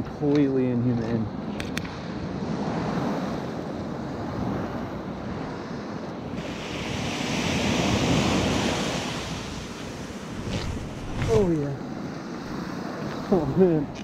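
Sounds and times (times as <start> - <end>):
wave breaking on sand beach: 6.3 - 13.7.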